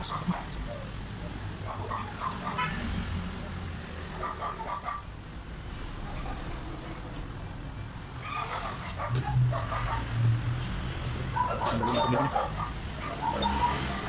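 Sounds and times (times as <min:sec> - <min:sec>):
vehicle engine rumbling: 0:05.0 - 0:14.0.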